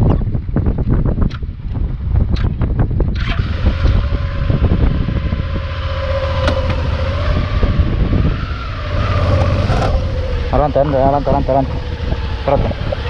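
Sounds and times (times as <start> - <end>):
motorcycle engine revving: 3.0 - 13.0.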